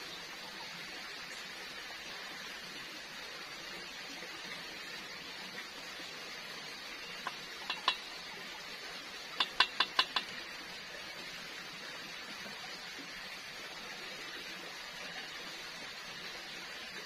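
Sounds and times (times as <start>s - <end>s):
frying hiss: 0.0s - 17.0s
spatula knocking metal pan: 7.3s - 8.1s, 9.4s - 10.3s.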